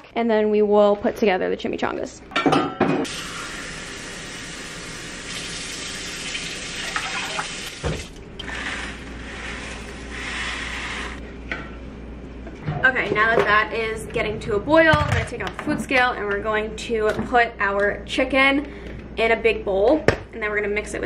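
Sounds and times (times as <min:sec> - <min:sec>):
tap water filling saucepan: 0:05.2 - 0:08.1.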